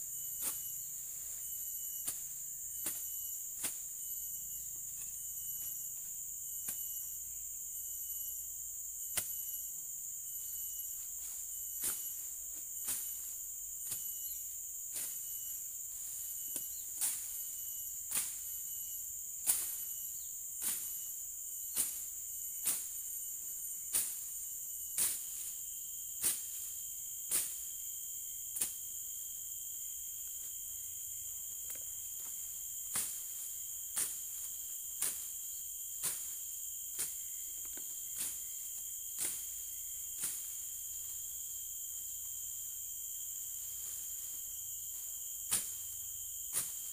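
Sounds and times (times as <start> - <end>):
high-pitched insect drone: 0.0 - 46.9
machete chopping weeds: 0.4 - 0.7, 2.0 - 3.9, 9.1 - 9.5, 11.8 - 12.2, 14.9 - 17.4, 18.1 - 18.5, 19.4 - 20.0, 20.6 - 21.1, 21.7 - 23.2, 23.9 - 24.3, 25.0 - 25.5, 26.2 - 27.6, 28.5 - 28.8, 31.7 - 38.6, 39.2 - 40.7, 45.4 - 46.9.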